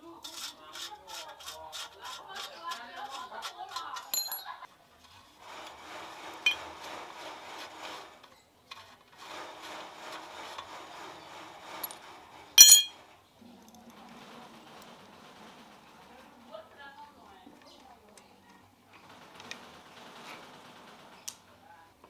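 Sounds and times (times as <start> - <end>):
threaded metal cup scraping: 0.0 - 13.0
metallic clink: 4.0 - 4.5, 12.6 - 13.0.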